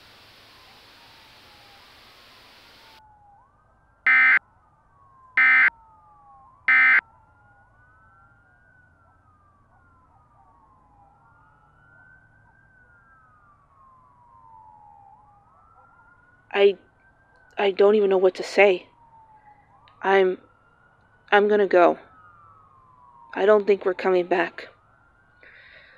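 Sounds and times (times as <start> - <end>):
sirens wailing: 0.0 - 25.9
electronic data bursts: 4.1 - 4.4, 5.4 - 5.7, 6.7 - 7.0.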